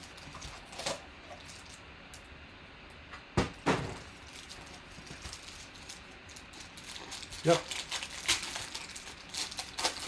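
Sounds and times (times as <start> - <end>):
card packs being handled: 4.2 - 10.0.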